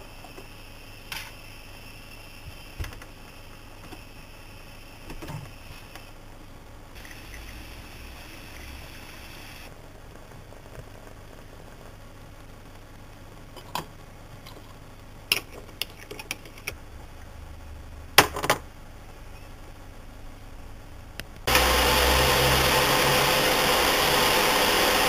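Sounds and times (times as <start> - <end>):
espresso machine hissing: 7.0 - 9.7, 21.5 - 25.0.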